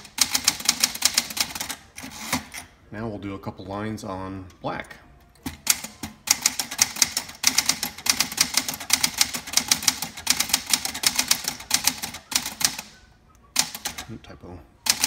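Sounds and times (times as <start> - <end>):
typewriter keystrokes: 5.4 - 12.9, 13.6 - 14.1.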